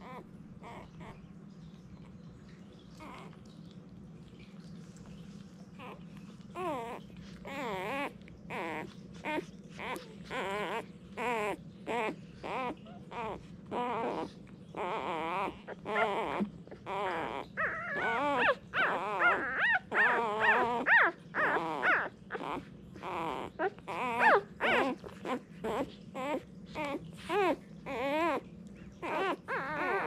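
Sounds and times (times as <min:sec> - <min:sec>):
puppies squeaking and whimpering: 0:00.0 - 0:01.3, 0:02.0 - 0:03.6, 0:05.8 - 0:30.0.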